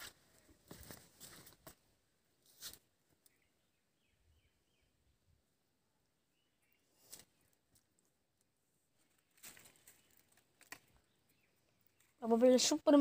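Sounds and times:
small bird chirping: 0:03.2 - 0:05.2, 0:06.2 - 0:07.9, 0:09.7 - 0:13.0
faint rustles: 0:08.9 - 0:11.1.

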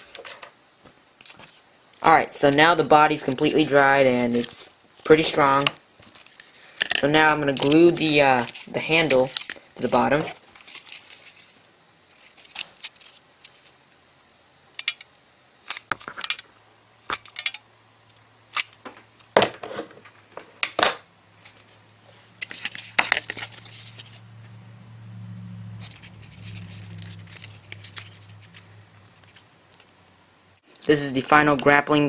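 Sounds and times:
cardboard and paper handling: 0:07.6 - 0:13.7, 0:22.4 - 0:24.2, 0:25.8 - 0:29.9
low hum: 0:21.1 - 0:30.6.

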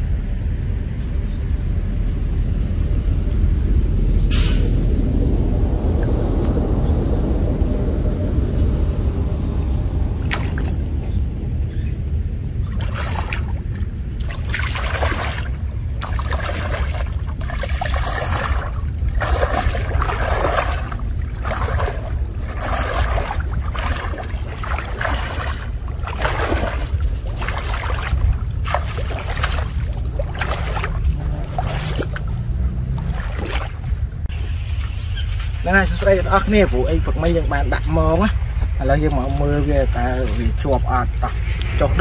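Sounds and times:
steady low rumble: 0:00.0 - 0:42.0
wading through muddy water: 0:10.2 - 0:11.0, 0:12.6 - 0:37.6, 0:38.4 - 0:42.0.

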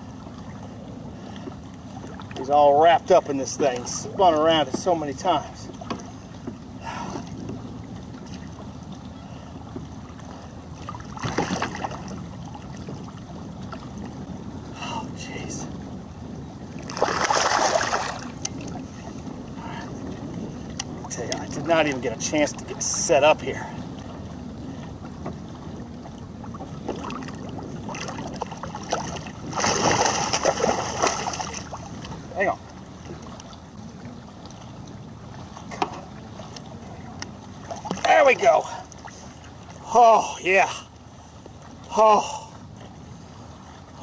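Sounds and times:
wind rumble on microphone: 0:00.0 - 0:39.9
small waves slapping a kayak: 0:00.0 - 0:44.0
fish thrashing and splashing: 0:16.9 - 0:18.3, 0:27.9 - 0:31.8.

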